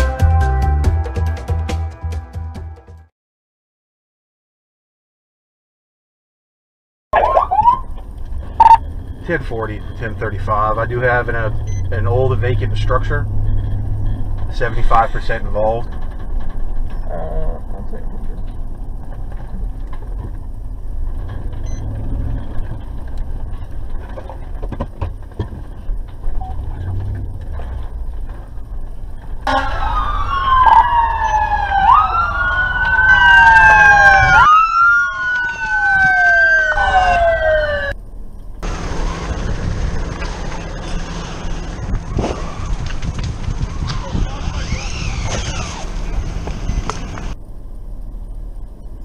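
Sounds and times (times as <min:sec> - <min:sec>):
emergency sirens wailing: 0:07.2 - 0:15.9, 0:29.4 - 0:38.0
vehicle engine and road rumble: 0:07.2 - 0:49.0.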